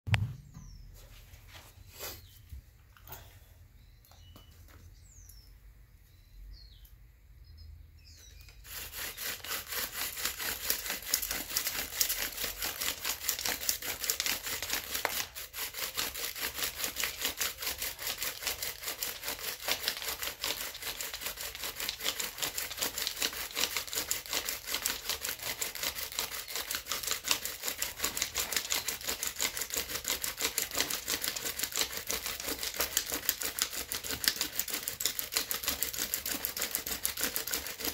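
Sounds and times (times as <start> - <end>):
bow drill scraping wood: 8.3 - 37.9.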